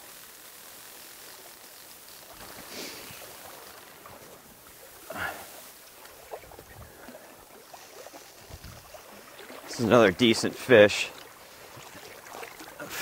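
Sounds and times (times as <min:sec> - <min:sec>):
stream rushing: 0:02.3 - 0:13.0
fish splashing at surface: 0:11.1 - 0:13.0.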